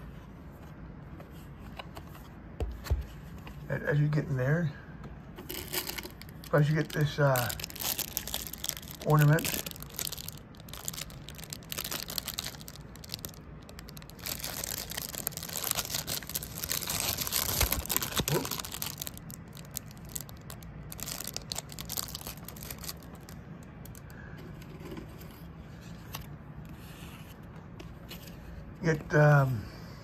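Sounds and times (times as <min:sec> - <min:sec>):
plastic wrapping crinkling: 0:05.4 - 0:24.1.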